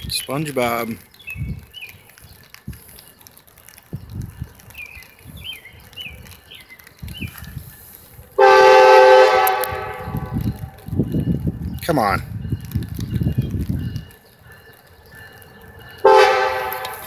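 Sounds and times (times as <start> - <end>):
locomotive air horn chord: 8.4 - 10.4, 16.0 - 17.0.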